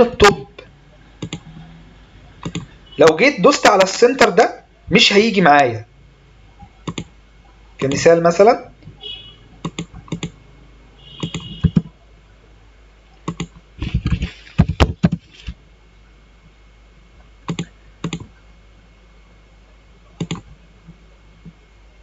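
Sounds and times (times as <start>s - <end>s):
computer keyboard typing: 1.2s - 1.5s, 2.4s - 2.7s, 6.8s - 7.1s, 9.6s - 10.4s, 11.2s - 11.9s, 13.2s - 14.1s, 17.5s - 18.3s, 20.2s - 20.5s.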